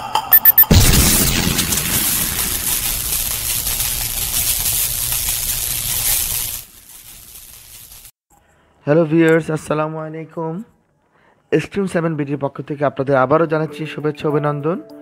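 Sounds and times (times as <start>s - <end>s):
impact hit tail: 0.7s - 4.2s.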